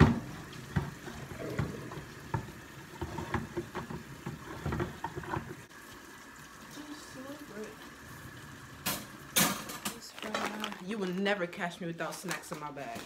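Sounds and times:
dishes clattering: 0:00.0 - 0:05.6, 0:08.8 - 0:10.6.

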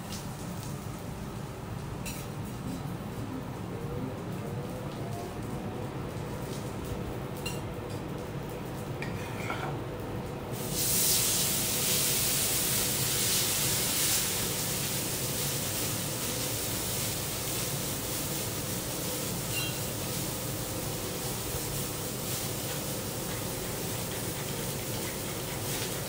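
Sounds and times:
steak sizzling on griddle: 0:10.5 - 0:26.0.

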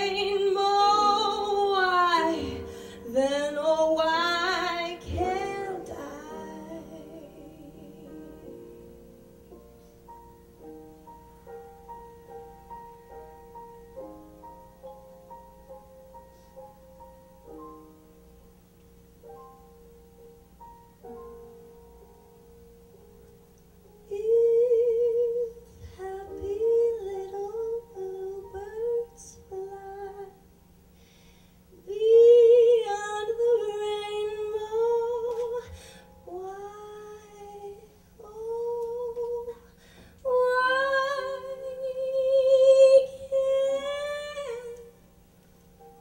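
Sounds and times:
woman singing with vibrato: 0:00.0 - 0:08.6, 0:24.1 - 0:30.4, 0:31.8 - 0:45.0.

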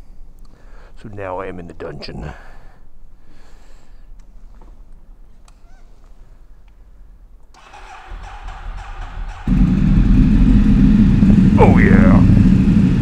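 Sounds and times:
motorcycle starter cranking: 0:07.6 - 0:11.6
motorcycle engine running: 0:07.6 - 0:13.0.

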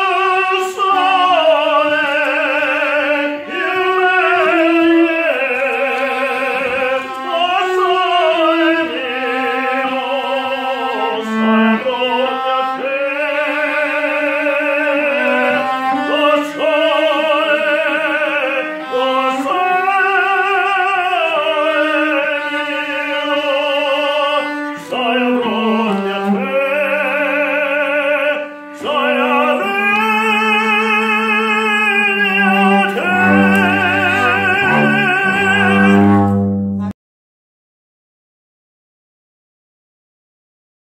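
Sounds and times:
man singing operatically: 0:00.0 - 0:36.3
cello playing low notes: 0:02.1 - 0:12.8, 0:14.4 - 0:16.8, 0:31.8 - 0:37.0.

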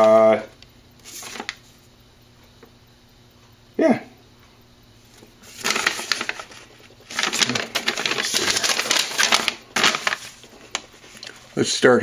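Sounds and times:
paper rustling and crackling: 0:01.0 - 0:01.6, 0:05.2 - 0:11.6.

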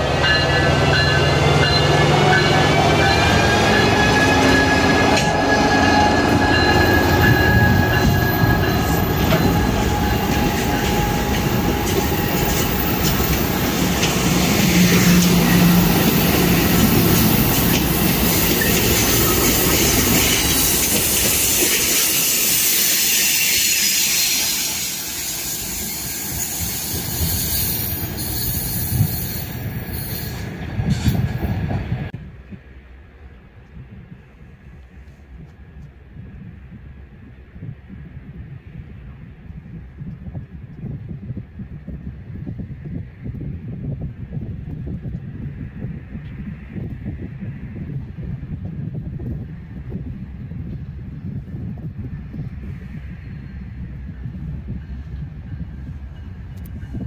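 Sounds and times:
locomotive engine drone: 0:00.0 - 0:22.4
train wheels rolling: 0:00.0 - 0:32.7
high wheel squeal: 0:01.7 - 0:13.5, 0:18.1 - 0:30.5.

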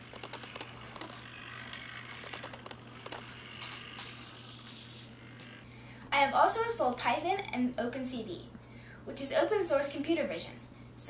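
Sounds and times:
servos whirring and clicking: 0:00.0 - 0:05.6
steady low hum: 0:00.0 - 0:11.0.

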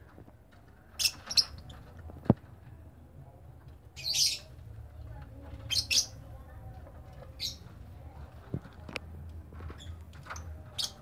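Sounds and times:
lovebirds chirping: 0:00.9 - 0:02.0, 0:03.9 - 0:04.7, 0:05.4 - 0:08.2.

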